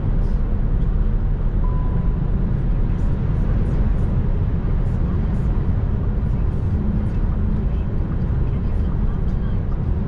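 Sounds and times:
road and wind noise in car: 0.0 - 10.0
short thin steady tone: 1.6 - 2.2.

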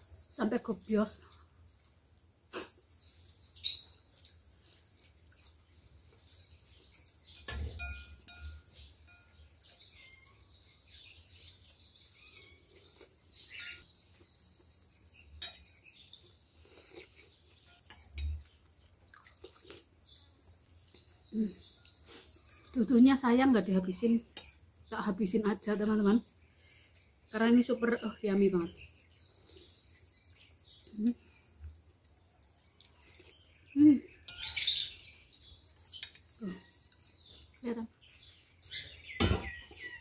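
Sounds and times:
small birds chirping: 0.0 - 40.0
cutlery clinking against bowl: 15.4 - 15.9, 17.6 - 18.5, 24.3 - 24.6, 34.2 - 34.8.

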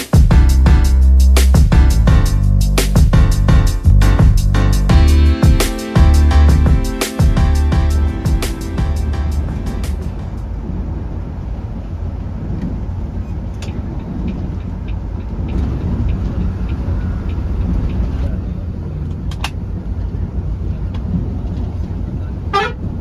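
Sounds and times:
engine and tyre rumble: 7.4 - 23.0.

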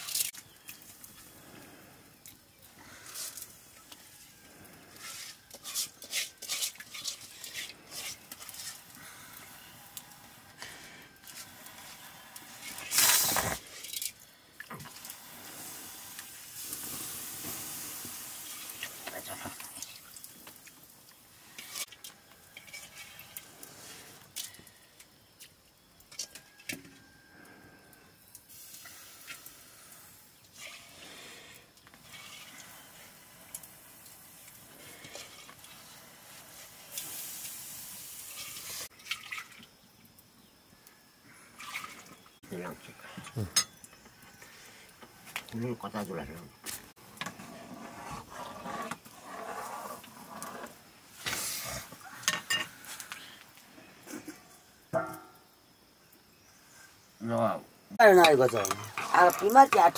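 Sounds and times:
water swishing in metal bowl: 3.0 - 10.4, 21.4 - 24.6, 30.4 - 31.2, 31.9 - 39.6, 41.6 - 42.3, 58.0 - 59.9
loud hiss: 8.7 - 19.2, 28.5 - 38.9, 51.0 - 52.0
liquid dripping into a pot: 38.3 - 40.5.

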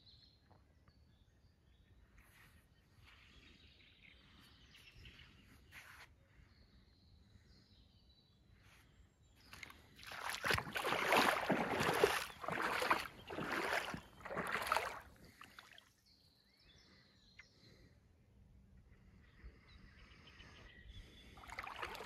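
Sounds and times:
water sloshing and splashing: 9.5 - 15.9, 21.3 - 22.0.

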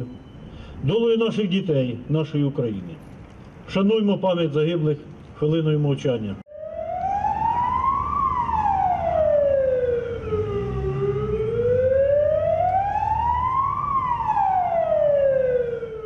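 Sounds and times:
fire engine siren wailing: 6.5 - 16.0.

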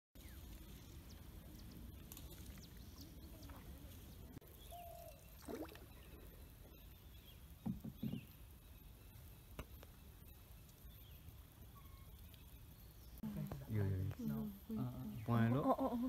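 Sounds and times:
faint water trickle: 0.2 - 7.6
dull knocks: 7.6 - 8.3.

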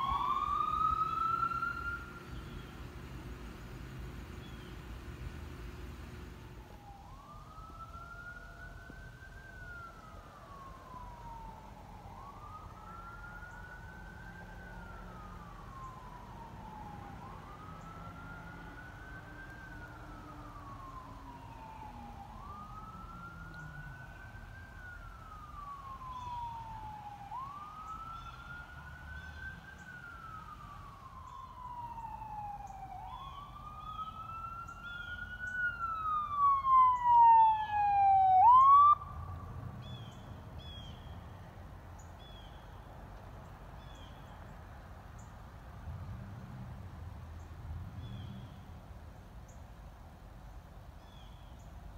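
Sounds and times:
higher fast-sweeping siren: 0.0 - 2.6, 6.6 - 40.2
siren slow wail: 0.0 - 2.8, 6.4 - 41.5.

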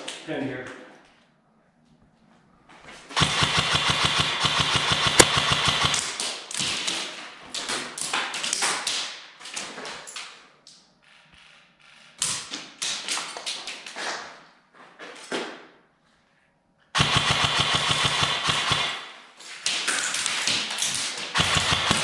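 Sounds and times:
airsoft guns firing bursts: 3.2 - 6.9, 17.0 - 19.3, 20.0 - 22.0.

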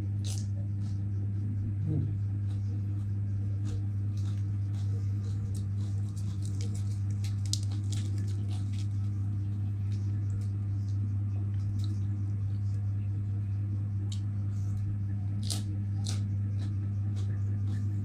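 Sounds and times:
crunching lettuce: 0.0 - 18.0
low electrical hum: 0.0 - 18.0
leaves tearing: 5.2 - 9.2.

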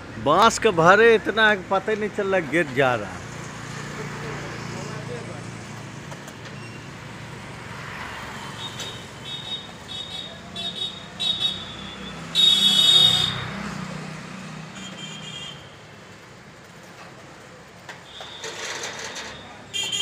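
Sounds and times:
rolling shutter metallic screeches: 6.2 - 7.4, 8.4 - 10.4, 18.0 - 20.0.

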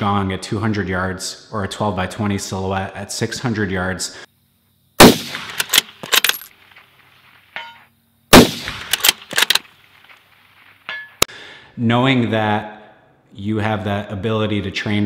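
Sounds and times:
rifle shots: 5.0 - 6.7, 8.3 - 10.8
rifle bolt clicking: 5.4 - 6.5, 8.7 - 9.7.

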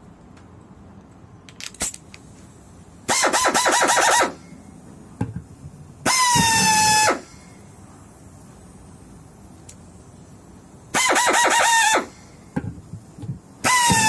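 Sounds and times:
pneumatic screwdriver whine: 3.1 - 4.4, 6.0 - 7.3, 11.0 - 12.2, 13.6 - 14.0.

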